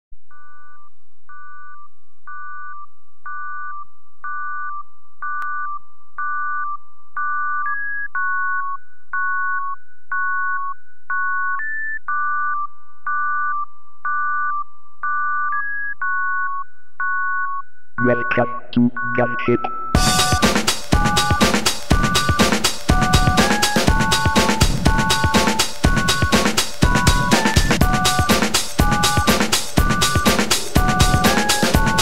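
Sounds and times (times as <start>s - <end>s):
held synthesizer tone: 18.0s - 20.4s
synthesizer beeping tune: 18.0s - 32.0s.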